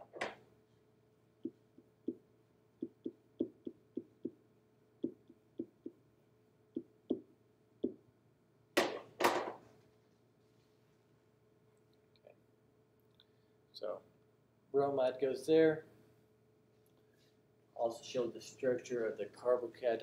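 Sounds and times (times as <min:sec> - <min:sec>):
stylus brushing: 0:02.8 - 0:04.4, 0:05.0 - 0:06.0
stylus tapping on whiteboard: 0:02.8 - 0:04.4, 0:05.0 - 0:06.0, 0:06.8 - 0:08.0.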